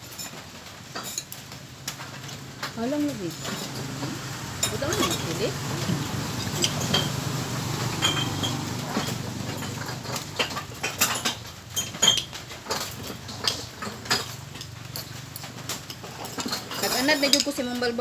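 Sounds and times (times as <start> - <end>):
cutlery clinking on ceramic plates: 0.0 - 1.4, 3.4 - 18.0.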